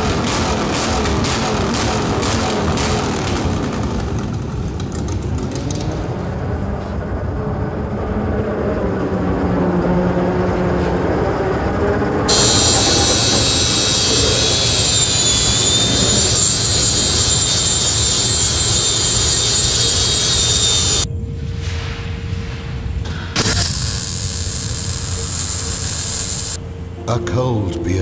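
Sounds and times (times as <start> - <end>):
angle grinder cutting steel: 12.3 - 21.1, 23.4 - 26.6.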